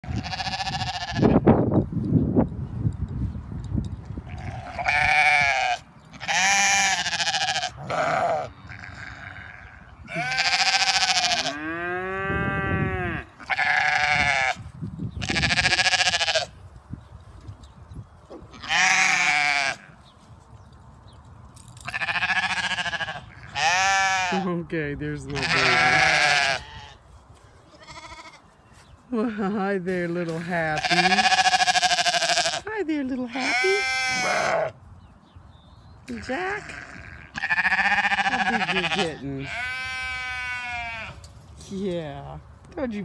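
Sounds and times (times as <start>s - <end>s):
sheep bleating: 0.0s - 1.4s, 4.3s - 16.5s, 18.5s - 20.0s, 21.9s - 24.5s, 25.3s - 27.0s, 27.7s - 28.5s, 30.3s - 34.8s, 36.1s - 41.2s.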